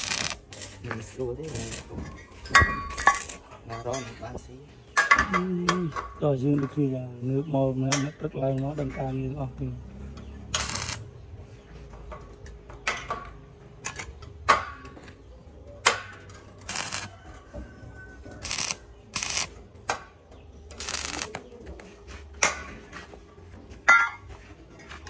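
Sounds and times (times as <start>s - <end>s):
welding arc crackling: 0.0s - 1.9s, 3.0s - 3.4s, 10.5s - 11.1s, 16.6s - 17.1s, 18.4s - 19.6s, 20.7s - 21.4s.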